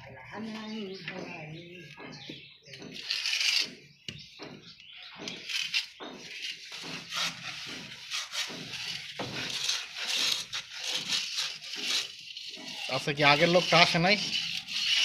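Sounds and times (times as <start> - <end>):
plastering tool scraping plaster: 2.9 - 3.9, 5.3 - 15.0.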